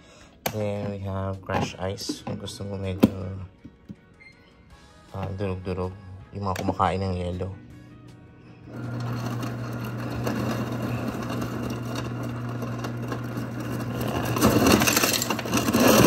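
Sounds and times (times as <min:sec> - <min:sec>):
ice dispenser motor hum: 0:08.6 - 0:16.0
ice crushing and rattling: 0:08.8 - 0:16.0.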